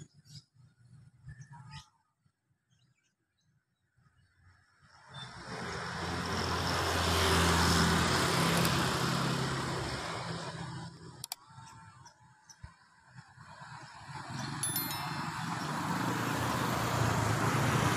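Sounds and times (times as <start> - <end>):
vehicle engine passing by: 5.1 - 11.2, 13.6 - 17.9.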